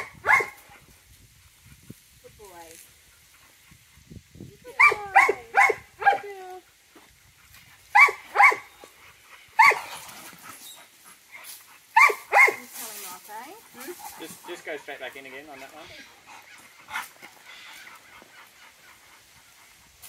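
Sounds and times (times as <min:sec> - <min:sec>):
dog barking: 0:00.0 - 0:00.6, 0:04.8 - 0:06.3, 0:07.9 - 0:08.7, 0:09.6 - 0:09.9, 0:12.0 - 0:12.6.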